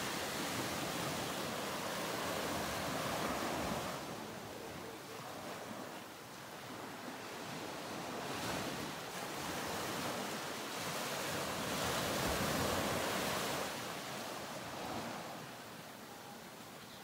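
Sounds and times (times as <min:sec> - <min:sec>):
ocean surf rushing: 0:00.0 - 0:06.0.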